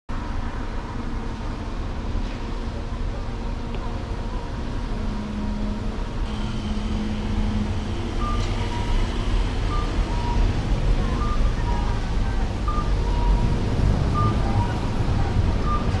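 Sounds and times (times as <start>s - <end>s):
road traffic: 0.1s - 16.0s.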